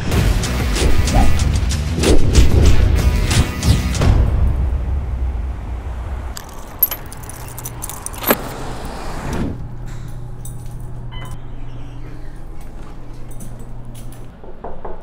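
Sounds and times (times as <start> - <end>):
bag fittings clicking: 6.4 - 8.5.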